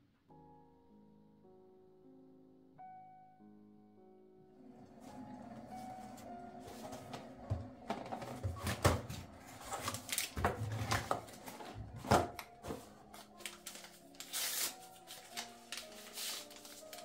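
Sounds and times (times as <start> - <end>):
card and paper rustling: 6.7 - 17.0
paper tearing: 13.2 - 17.0.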